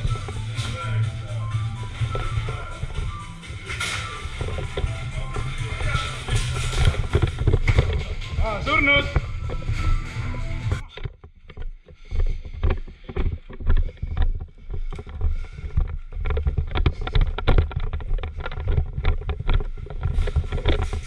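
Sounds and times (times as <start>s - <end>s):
microphone handling clicks and knocks: 2.0s - 8.4s, 10.7s - 21.0s.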